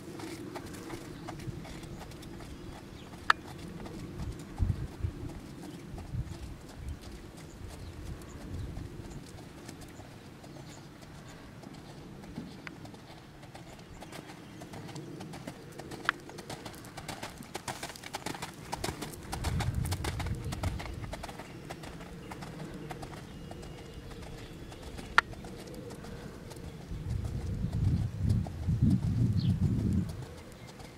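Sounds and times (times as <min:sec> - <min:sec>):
horse hooves trotting on gravel: 0:00.0 - 0:30.9.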